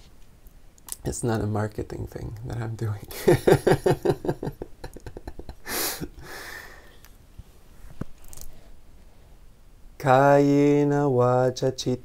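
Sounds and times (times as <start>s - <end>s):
man chuckling: 3.1s - 6.7s
sharp breath: 5.6s - 7.0s.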